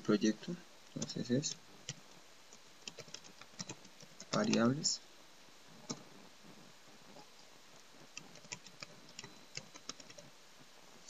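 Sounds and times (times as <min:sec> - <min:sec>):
faint keyboard typing: 0:00.0 - 0:05.0, 0:05.8 - 0:06.2, 0:07.1 - 0:10.4.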